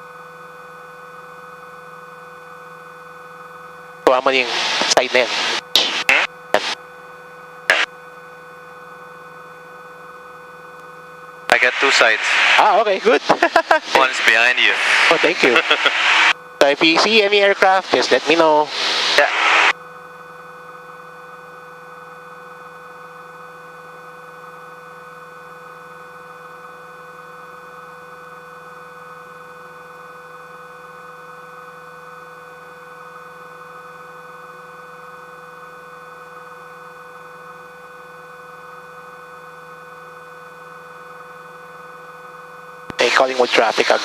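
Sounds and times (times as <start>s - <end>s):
aircraft engine and propeller drone: 11.6s - 19.7s.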